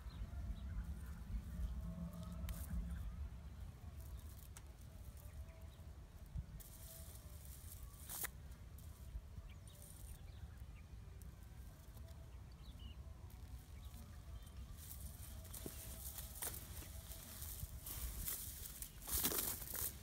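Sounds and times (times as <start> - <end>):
low rumble: 0.0 - 4.3.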